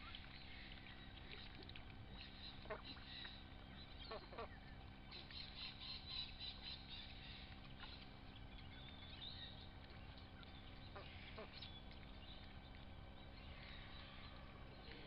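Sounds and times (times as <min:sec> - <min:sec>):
ducklings peeping: 0:00.0 - 0:15.0
steady low hum: 0:00.0 - 0:15.0.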